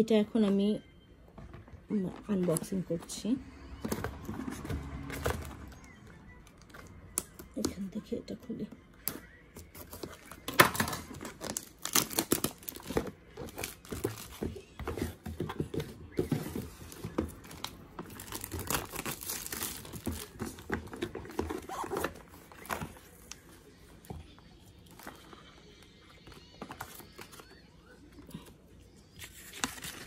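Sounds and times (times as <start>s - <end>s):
packaging crinkling and tearing: 9.7s - 14.5s, 17.3s - 23.4s.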